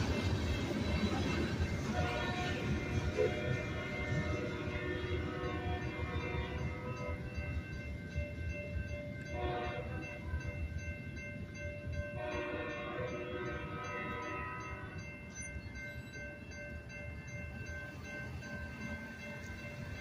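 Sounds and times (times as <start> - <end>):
freight train rumble: 0.0 - 20.0
railroad crossing bell ringing: 0.0 - 20.0
distant train horn blasts: 1.0 - 7.3, 9.2 - 10.4, 12.1 - 15.1.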